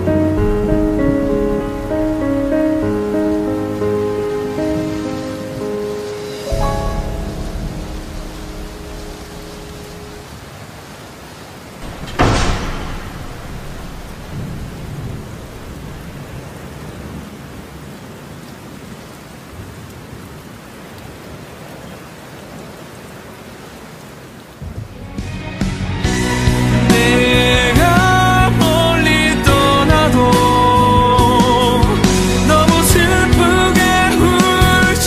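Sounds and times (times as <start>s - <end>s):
thunder crack: 0.0s - 5.3s, 6.5s - 10.4s, 11.8s - 17.0s
steady rain: 0.0s - 35.0s.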